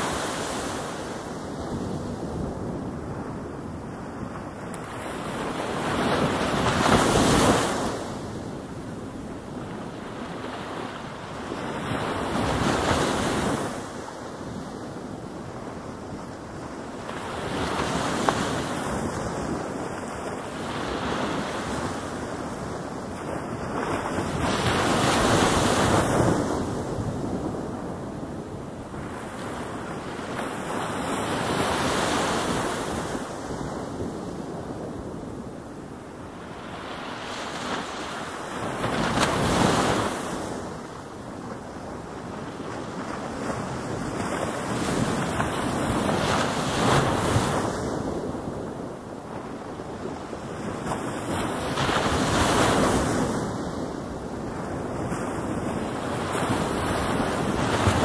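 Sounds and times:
ocean waves rolling in: 0:00.0 - 0:58.0.

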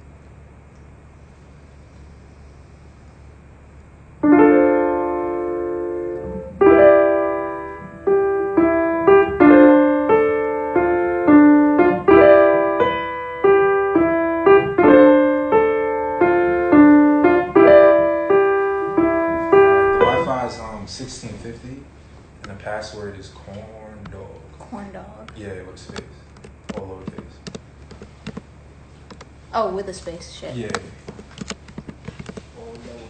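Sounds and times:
faint low hum: 0:00.0 - 0:33.0
piano chords: 0:04.2 - 0:21.9.

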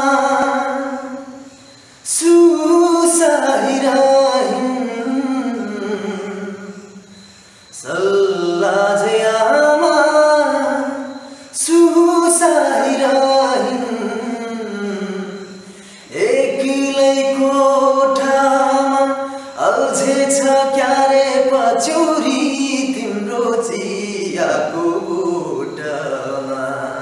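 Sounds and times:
man singing unaccompanied: 0:00.0 - 0:27.0.

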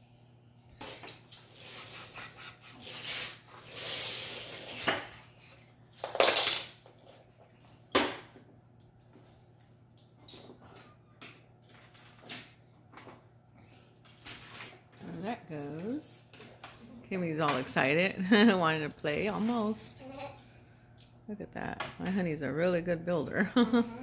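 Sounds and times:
plastic rustling and clattering: 0:05.9 - 0:08.4, 0:10.2 - 0:13.3, 0:14.0 - 0:15.2.

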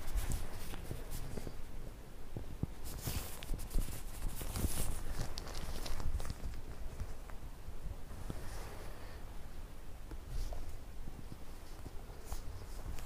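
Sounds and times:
plastic glove rustling: 0:00.0 - 0:01.6, 0:02.8 - 0:07.4.

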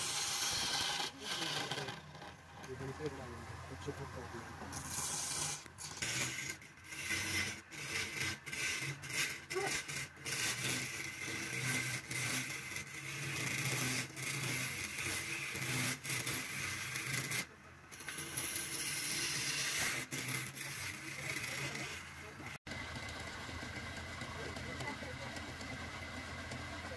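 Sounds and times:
chisel scraping spinning wood: 0:00.0 - 0:26.9
lathe humming: 0:18.1 - 0:26.9.

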